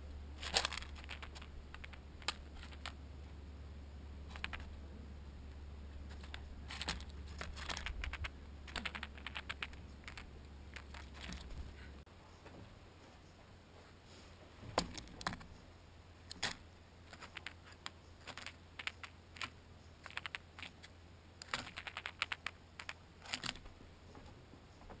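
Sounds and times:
birds pecking at peanut shells: 0.4s - 3.0s, 4.2s - 4.8s, 6.0s - 12.0s, 16.2s - 23.8s.

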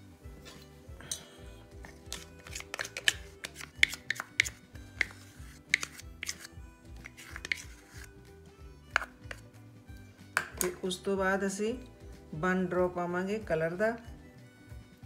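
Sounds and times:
soft background music: 0.0s - 15.0s
metal spoon scraping cup and bowl: 0.4s - 8.2s, 8.9s - 9.5s.

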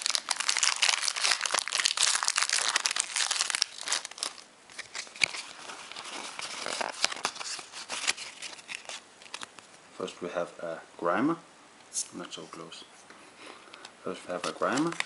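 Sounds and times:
foil wrapper crinkling and tearing: 0.0s - 9.5s
cards rustling and clicking: 0.0s - 9.6s, 13.8s - 15.0s.

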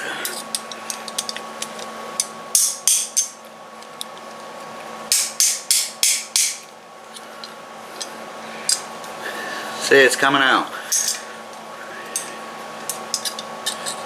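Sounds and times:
hammer tapping metal: 5.1s - 6.7s.

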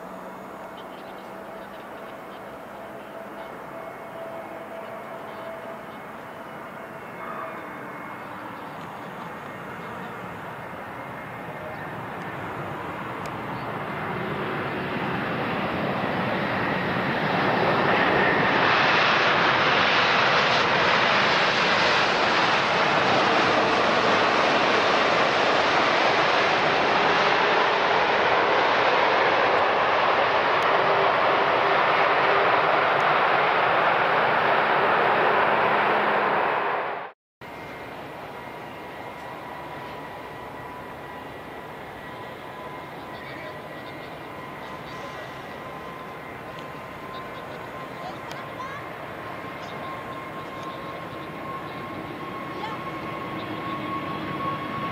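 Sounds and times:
faint steady engine whine: 0.0s - 54.9s
jet engines roaring: 0.0s - 54.9s.

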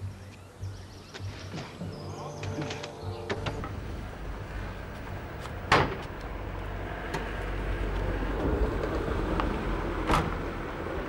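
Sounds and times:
low rumble: 1.9s - 11.0s
van tailgate bang: 5.7s - 6.1s.

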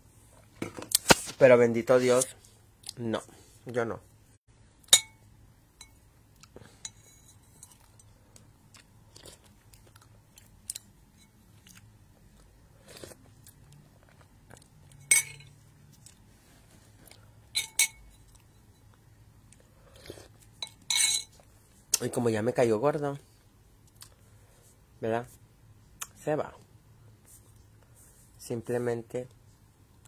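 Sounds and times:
chewing and mouth noises: 7.7s - 10.9s, 11.5s - 15.0s, 23.8s - 24.2s
spoon clinking against bowl: 15.0s - 15.5s, 17.6s - 18.8s.

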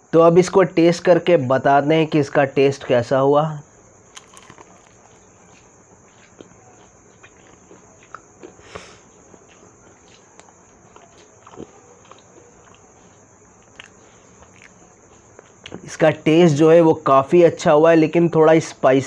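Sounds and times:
person chewing crunchy food: 3.6s - 15.9s.

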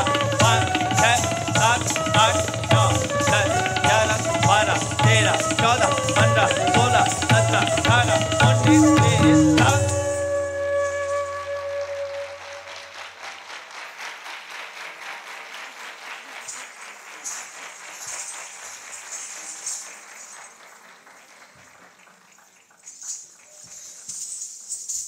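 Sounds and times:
audience applauding: 11.4s - 23.6s.

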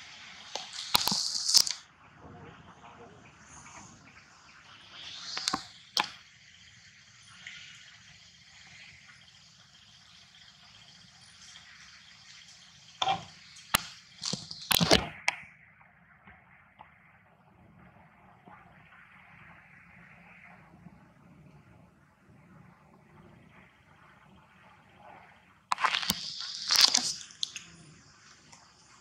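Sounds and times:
steady high hiss: 0.0s - 15.7s, 17.0s - 29.0s
sharp cracks and knocks: 0.5s - 1.8s, 13.0s - 15.4s, 25.7s - 27.6s.

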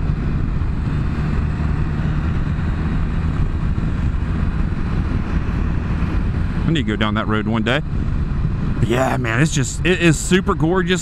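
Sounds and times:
wind and road noise: 0.0s - 11.0s.

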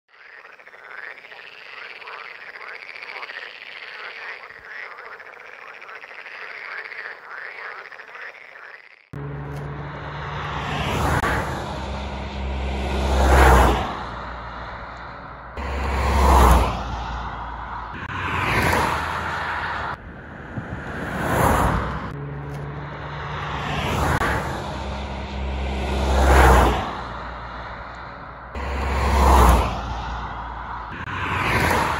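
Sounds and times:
frogs croaking: 0.1s - 9.2s, 10.2s - 20.0s
cars passing on road: 0.2s - 31.9s.

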